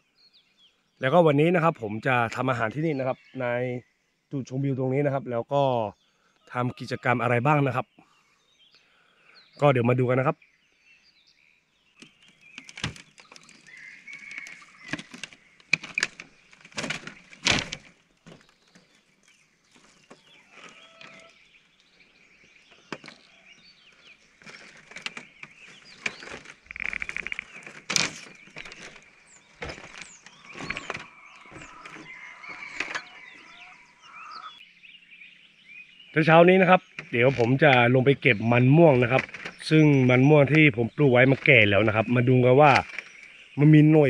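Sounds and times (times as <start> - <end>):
birds chirping: 0.0 - 44.0
rustles: 12.0 - 34.6, 36.6 - 44.0.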